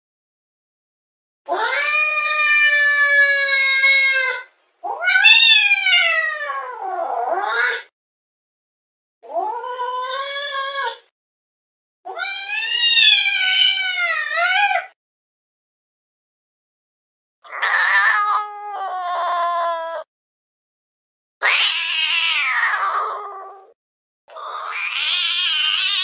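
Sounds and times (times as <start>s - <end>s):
cat yowling: 1.5s - 7.9s, 12.1s - 15.0s, 17.5s - 20.1s, 21.4s - 26.0s.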